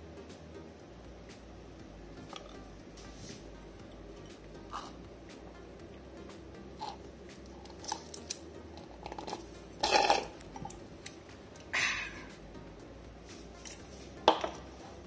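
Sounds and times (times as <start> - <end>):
spoon scraping glass: 9.0 - 10.8.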